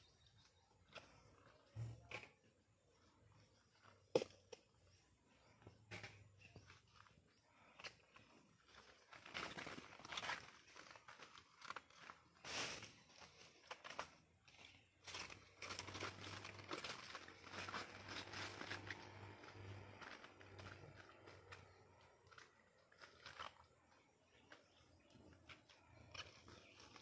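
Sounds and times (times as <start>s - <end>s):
dry leaves rustling and crunching: 8.7s - 23.7s.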